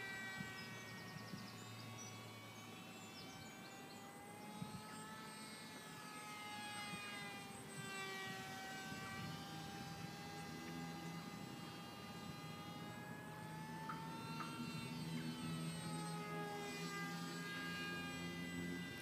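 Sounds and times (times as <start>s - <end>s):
electric motor and propeller whining: 0.0s - 19.0s.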